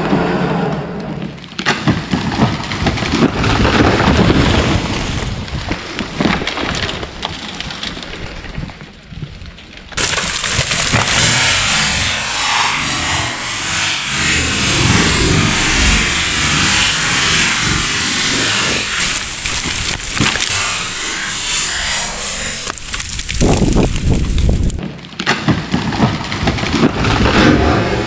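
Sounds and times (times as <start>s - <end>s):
tree falling and wood cracking: 1.2s - 28.0s
branches crashing: 1.5s - 28.0s
steady rushing noise: 10.2s - 24.8s.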